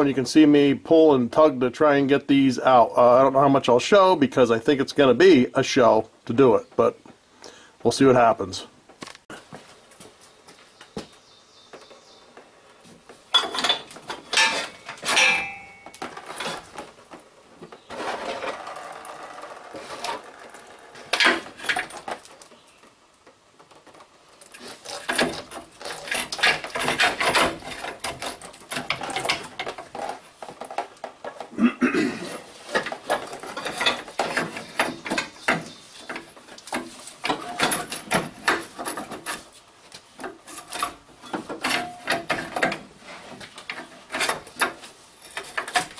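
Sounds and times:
metal lines clicking and rattling: 13.3 - 31.6, 32.3 - 45.9
dense scraping and rubbing: 17.7 - 22.7, 23.8 - 31.5, 32.2 - 45.9.

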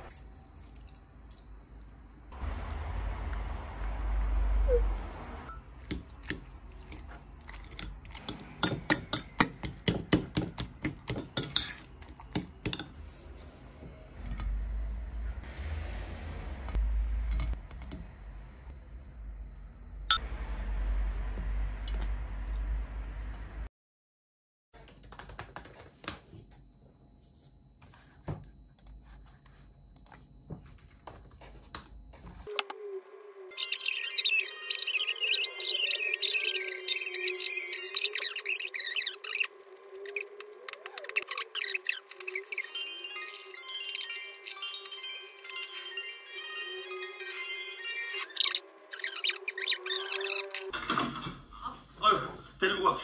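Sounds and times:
fork mashing avocado in a bowl: 5.8 - 13.0
laptop keyboard typing: 24.8 - 26.0.

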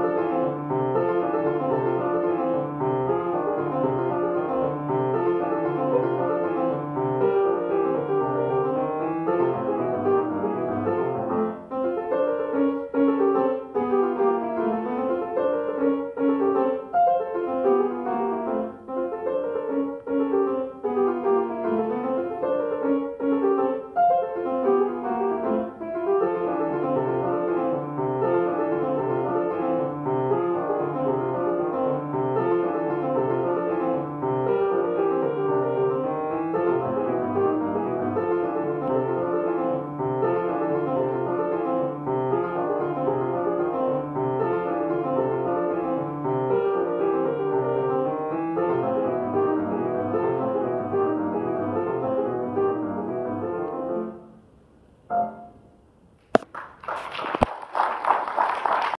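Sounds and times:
jazz piano playing: 0.0 - 54.5, 55.1 - 56.5
audience applause: 56.4 - 59.0.

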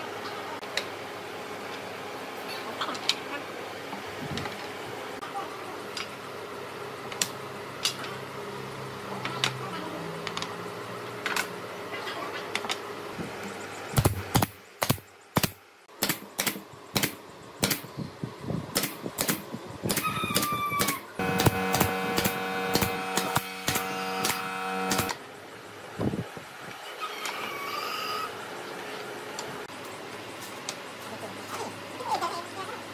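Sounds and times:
brad nailer shots: 14.0 - 17.9, 18.7 - 25.2
machine hum: 21.2 - 25.6.

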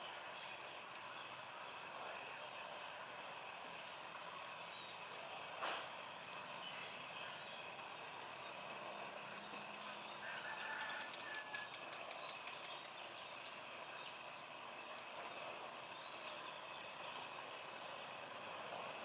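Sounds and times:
steady hiss: 0.0 - 19.0
quick run of clicks: 11.1 - 12.9.

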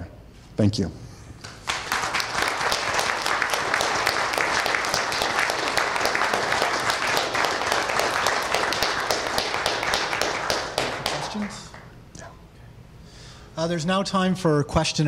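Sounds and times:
audience applauding: 1.5 - 12.0.

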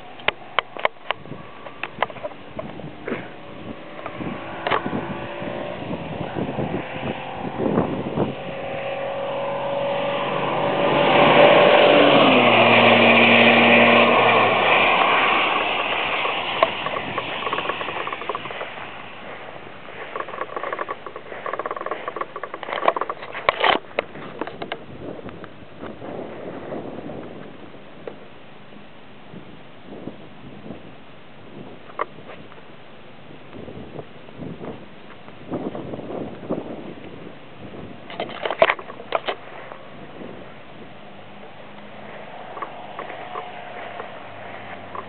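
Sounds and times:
car exhaust passing at speed: 0.0 - 28.1, 38.7 - 45.0
wind buffeting microphone: 0.0 - 45.0.

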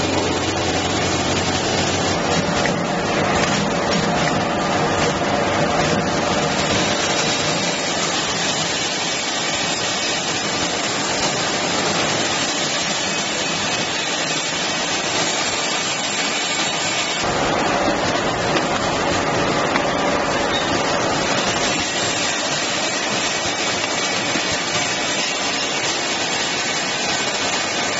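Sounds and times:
bottling line whirring and hissing: 5.8 - 17.7, 19.4 - 27.9.

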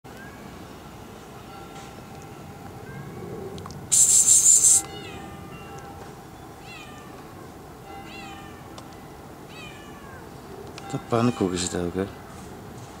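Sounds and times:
loud hissing noise burst: 3.9 - 4.9
cat meowing: 9.5 - 10.3.

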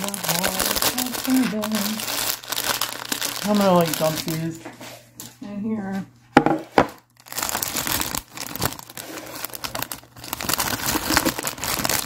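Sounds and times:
plastic netting crinkling: 0.0 - 4.6, 7.2 - 12.0.

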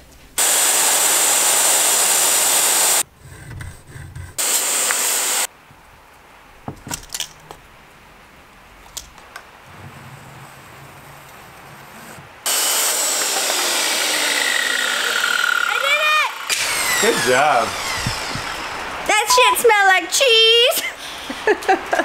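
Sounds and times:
loud steady hiss: 0.0 - 3.1, 4.4 - 6.8, 12.3 - 22.0.

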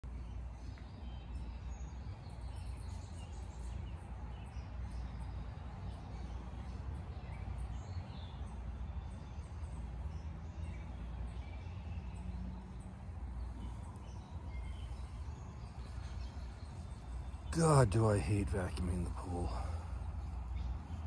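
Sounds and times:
small birds chirping: 0.0 - 21.0
steady low rumble: 12.9 - 21.0.

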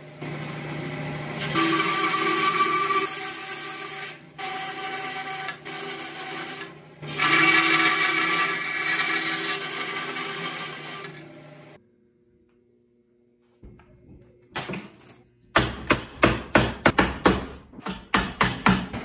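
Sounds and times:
bandsaw motor humming: 0.0 - 11.8
bandsaw blade cutting plastic: 1.4 - 11.2.

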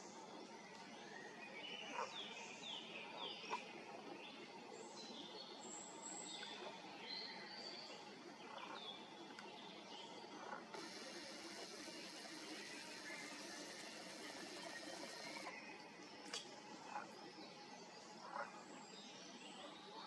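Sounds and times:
low background noise: 0.0 - 20.0
small birds chirping: 6.3 - 17.2.

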